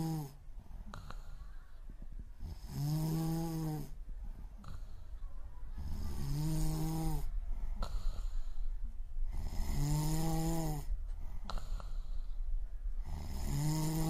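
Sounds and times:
person snoring: 2.4 - 4.0, 5.8 - 8.3, 9.3 - 10.9, 13.0 - 14.0.

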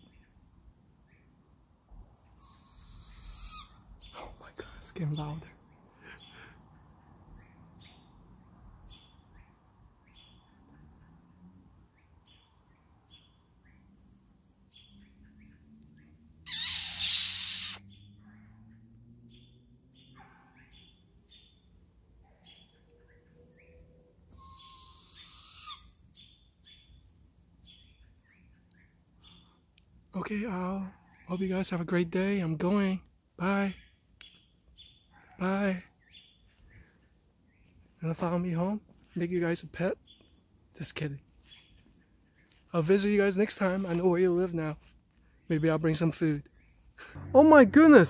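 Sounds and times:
owl raspy screeches: 2.2 - 3.9, 16.4 - 17.9, 24.3 - 26.0.

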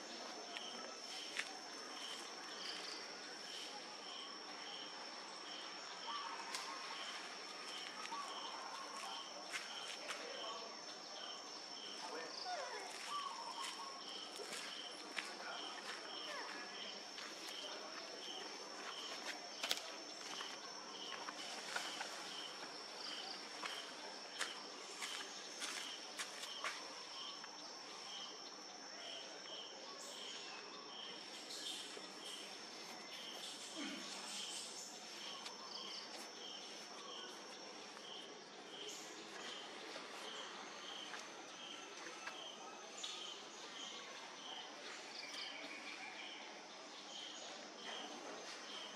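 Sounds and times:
insects droning: 0.0 - 48.9
background hiss: 29.2 - 41.8.

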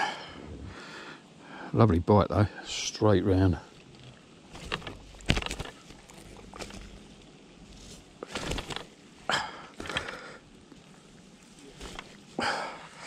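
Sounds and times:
knocks and rustles of landing net: 4.5 - 7.2, 7.8 - 9.0, 11.6 - 12.3.

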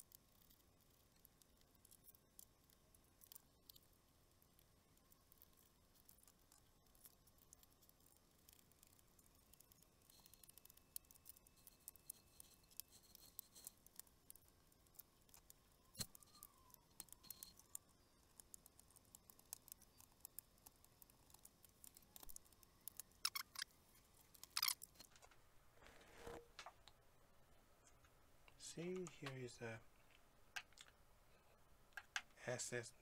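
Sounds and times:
screwdriver clicking on laptop: 9.5 - 23.7.

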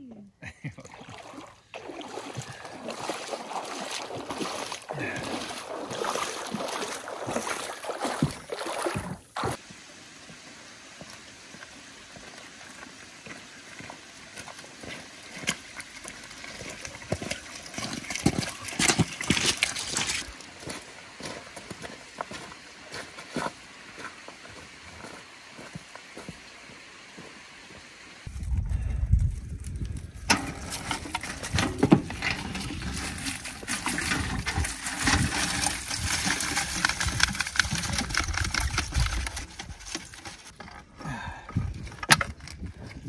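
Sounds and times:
shallow water splashing: 0.8 - 9.6
footsteps on pebble beach: 2.2 - 28.4.

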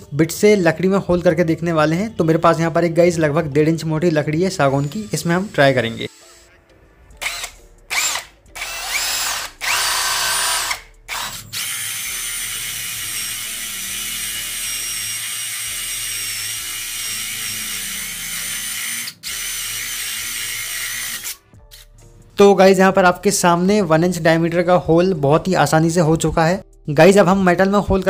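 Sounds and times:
cordless drill boring through wood: 4.5 - 6.4, 7.2 - 21.4.

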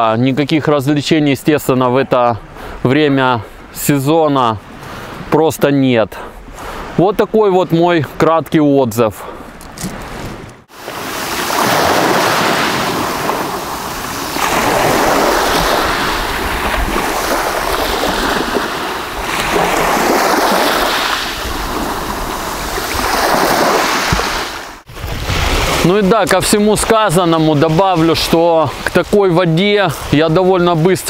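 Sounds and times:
waves washing over pebble beach: 10.7 - 27.9.

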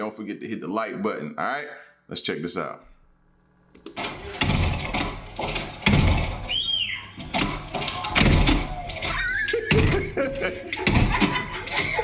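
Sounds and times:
dog pawing at glass door: 7.2 - 12.0.

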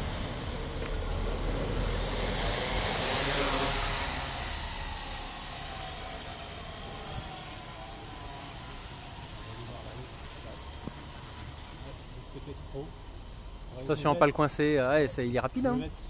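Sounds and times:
drone motors whirring: 0.0 - 16.0.

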